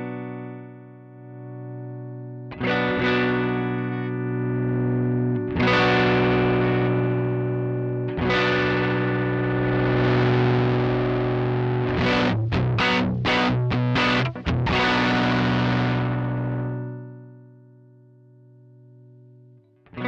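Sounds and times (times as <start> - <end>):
distorted electric guitar chord: 2.6 - 17.2.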